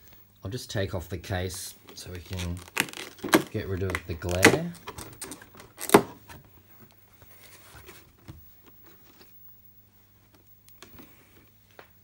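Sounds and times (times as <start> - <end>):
low steady hum: 0.0 - 12.0
plastic case clicks and rustles: 2.4 - 6.4.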